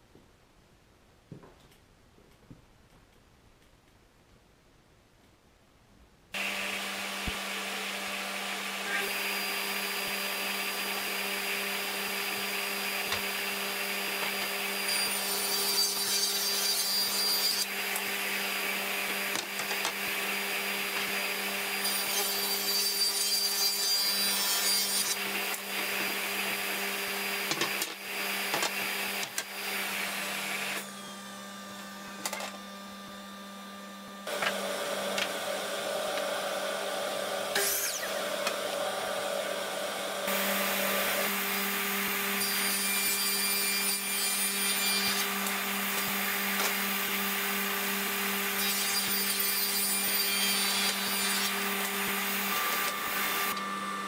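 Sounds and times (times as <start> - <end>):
saw cutting through board: 6.4 - 33.6, 34.2 - 54.0
table saw humming: 6.4 - 54.0
saw blade winding down whine: 29.0 - 42.2.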